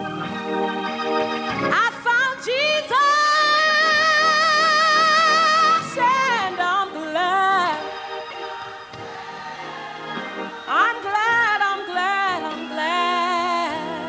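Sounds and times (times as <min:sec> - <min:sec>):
organ: 0:00.0 - 0:14.0
woman singing gospel: 0:01.7 - 0:08.2, 0:10.6 - 0:14.0.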